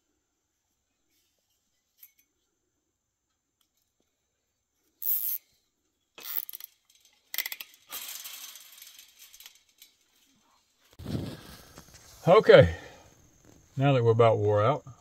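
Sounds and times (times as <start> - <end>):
zip tie ratcheting: 5.0 - 5.5, 6.2 - 7.8.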